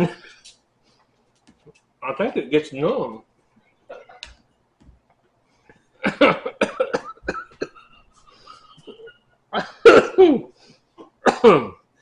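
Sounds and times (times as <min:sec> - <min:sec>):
man coughing: 0:06.0 - 0:11.9.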